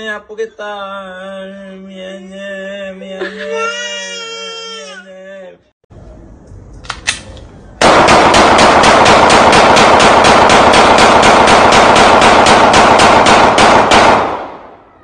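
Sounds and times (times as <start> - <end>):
rapid automatic gunfire: 7.8 - 14.8.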